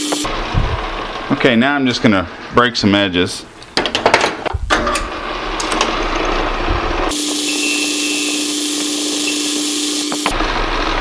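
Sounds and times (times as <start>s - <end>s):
metal lathe turning brass: 6.0s - 10.4s
high hiss with constant whine: 7.1s - 10.6s.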